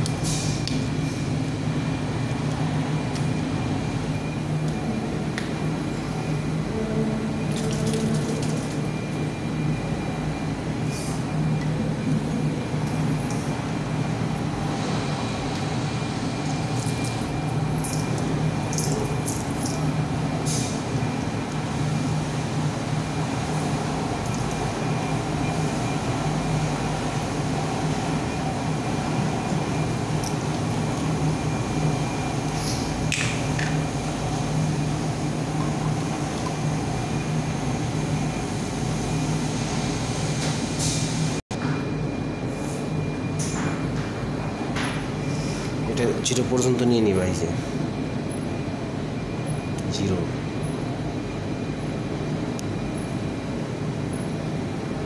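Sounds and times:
low mechanical hum with whine: 0:00.0 - 0:55.0.

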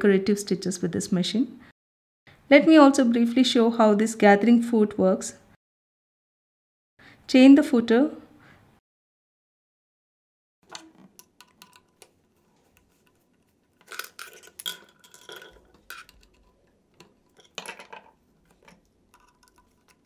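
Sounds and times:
sewing machine parts clicking and clinking: 0:10.7 - 0:20.0.

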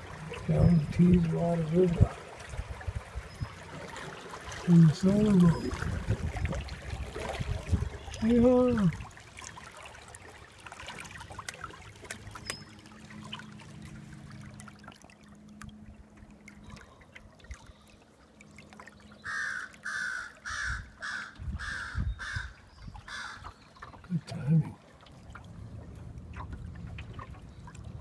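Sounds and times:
water lapping along boat hull: 0:00.0 - 0:28.0
bird calling: 0:19.0 - 0:24.3.

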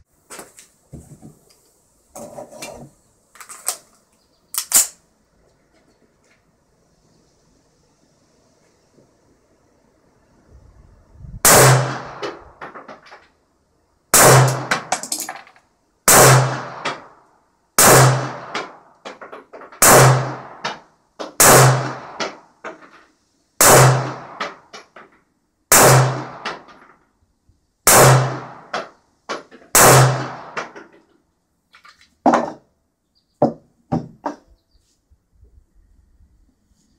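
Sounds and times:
pistol shots: 0:11.5 - 0:13.0, 0:14.2 - 0:15.2, 0:16.1 - 0:17.1, 0:17.8 - 0:18.8, 0:19.8 - 0:22.4, 0:23.6 - 0:24.8, 0:25.7 - 0:26.8, 0:27.9 - 0:30.8.

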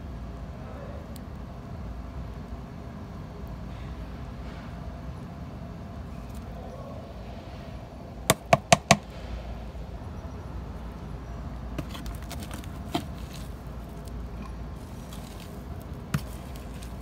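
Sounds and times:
sharp plastic knocks: 0:08.3 - 0:09.1.

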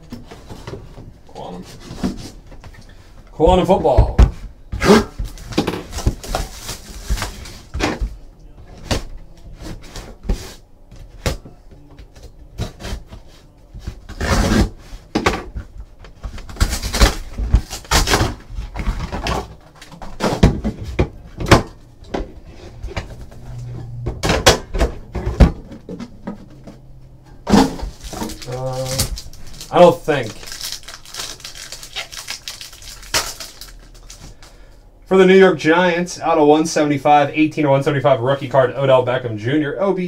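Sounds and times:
plastic wrap crinkling and tearing: 0:05.2 - 0:07.7, 0:16.5 - 0:18.4, 0:27.9 - 0:34.6.

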